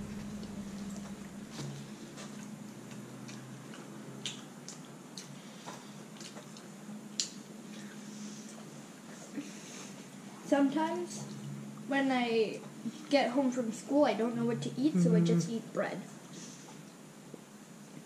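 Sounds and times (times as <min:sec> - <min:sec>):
faint low hum: 0:00.0 - 0:18.0
mouths chewing pizza: 0:00.9 - 0:07.4.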